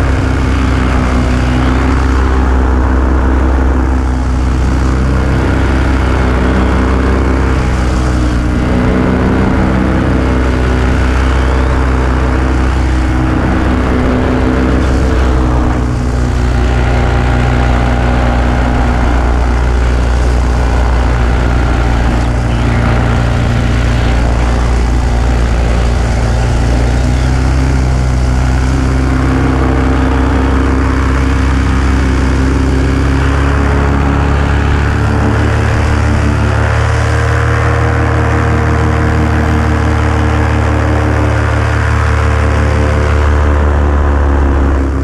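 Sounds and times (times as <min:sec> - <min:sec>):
small aircraft engine in flight: 0:00.0 - 0:45.0.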